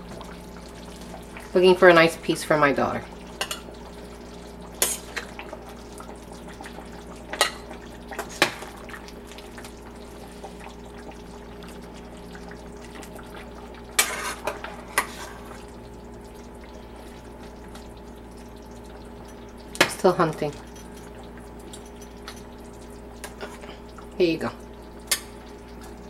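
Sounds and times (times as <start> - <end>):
liquid dripping and pouring: 0.0 - 1.6, 3.0 - 26.0
ladle scraping metal pot: 14.0 - 15.6.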